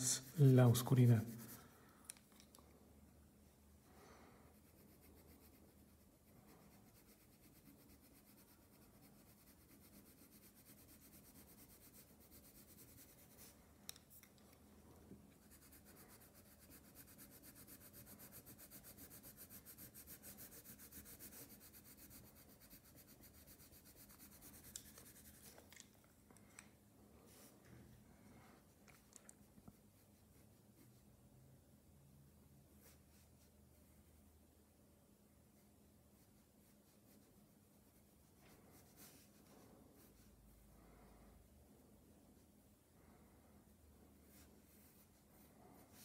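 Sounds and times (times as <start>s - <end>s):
pencil scratching on paper: 0.0s - 1.7s, 4.5s - 13.6s, 15.3s - 25.6s, 38.4s - 40.3s.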